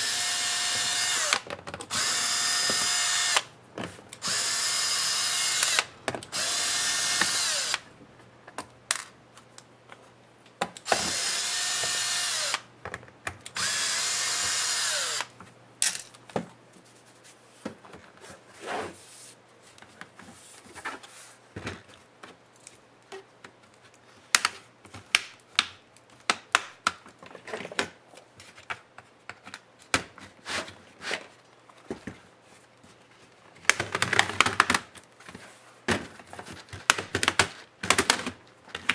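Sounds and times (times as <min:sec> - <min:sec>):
cordless electric screwdriver running: 0:00.0 - 0:03.5, 0:04.2 - 0:07.8, 0:10.9 - 0:12.6, 0:13.6 - 0:15.3.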